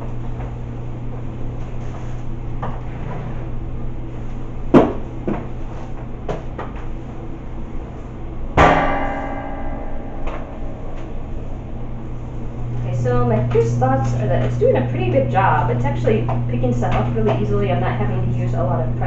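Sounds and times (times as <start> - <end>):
steady low hum: 0.0 - 19.0
metallic clang: 8.6 - 12.0.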